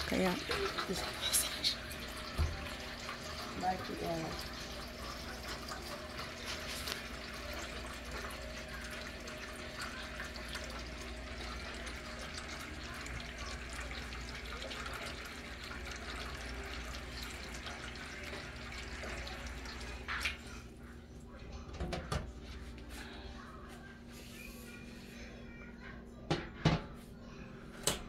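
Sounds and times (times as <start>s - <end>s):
faucet running into metal pot: 0.0s - 20.7s.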